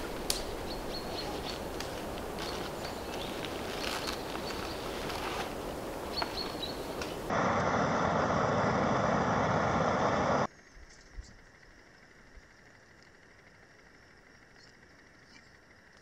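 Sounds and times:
camping stove flame rushing: 0.0 - 10.5
faint outdoor background: 0.0 - 16.0.

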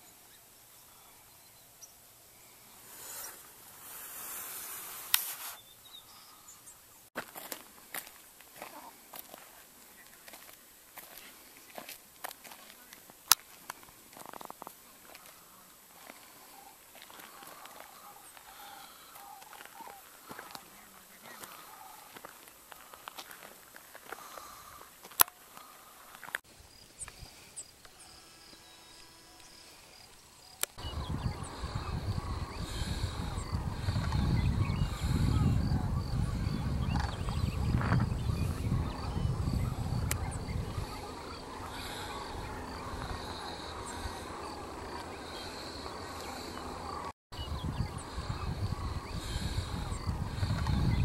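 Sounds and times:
faint bird calls: 8.6 - 51.0
wind rumble on microphone: 30.8 - 51.0.

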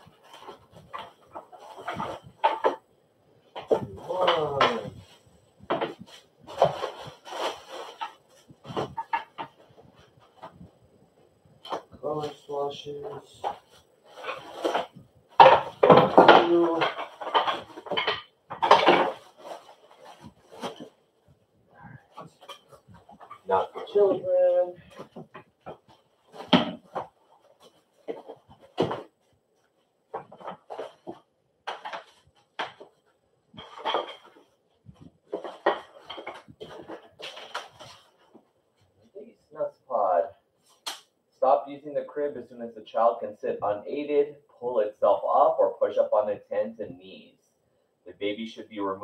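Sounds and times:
plastic wrapping rustling: 0.0 - 2.8, 3.4 - 10.8, 11.6 - 39.2
metal tubes clattering and knocking: 0.0 - 2.9, 13.0 - 20.9, 30.1 - 38.4
parts knocking and clinking: 14.2 - 20.8.

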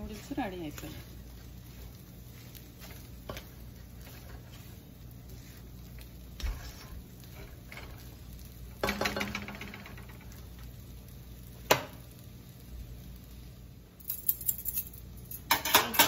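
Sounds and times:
noodles tossed in a wok: 0.0 - 13.4
light sizzle: 0.0 - 16.0
spatula rattling against wok: 7.2 - 10.7, 14.0 - 16.0.

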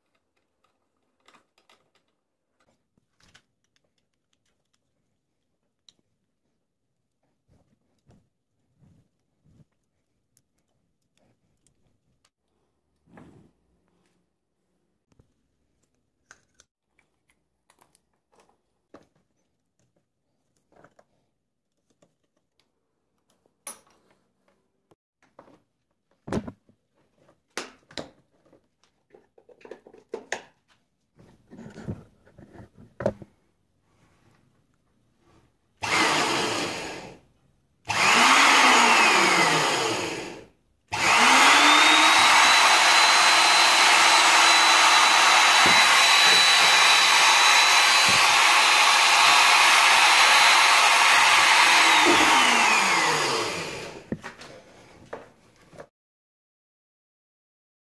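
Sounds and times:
electric drill whining: 35.8 - 37.2, 37.9 - 54.1.

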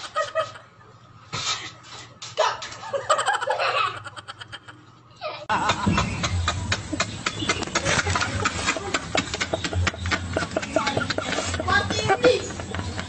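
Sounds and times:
man laughing loudly: 2.9 - 4.8, 5.5 - 7.0, 7.8 - 11.8.

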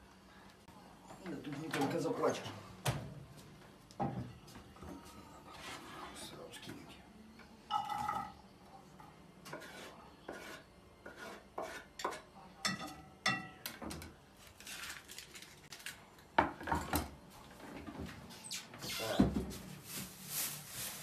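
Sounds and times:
knife scraping wooden cutting board: 9.5 - 12.2.

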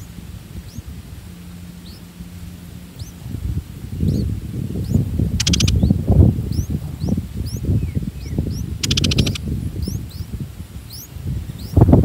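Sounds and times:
buzzy rattles: 0.0 - 7.2
high rising bird chirps: 1.8 - 2.2, 3.9 - 11.8.

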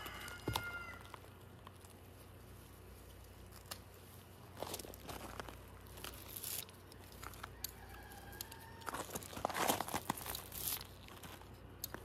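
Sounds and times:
distant rooster crow: 0.0 - 1.2, 7.4 - 9.5
flower stems rustling and crackling: 0.0 - 12.0.

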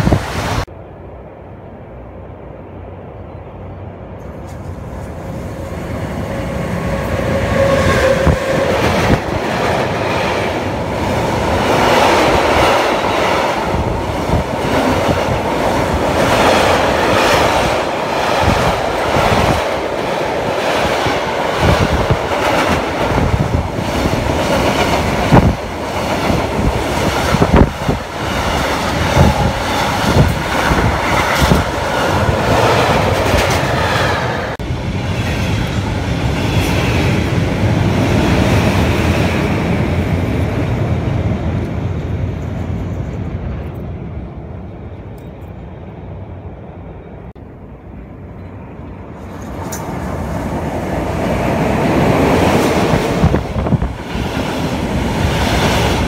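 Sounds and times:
second train passing: 0.0 - 56.0
train wheels clattering on track: 7.0 - 40.6, 51.0 - 56.0.

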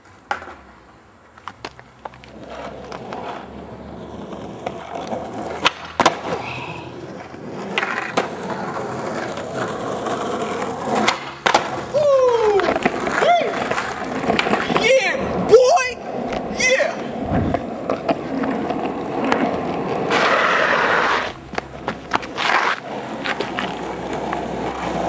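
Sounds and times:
skateboard popping and landing clacks: 0.0 - 15.5, 16.2 - 25.0
skateboard wheels rolling on asphalt: 0.0 - 25.0
person shouting: 11.9 - 13.6, 14.7 - 17.2.

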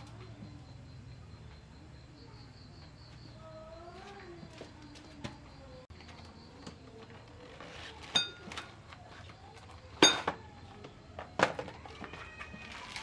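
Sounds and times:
cardboard rustling: 6.0 - 9.8, 11.8 - 13.0.

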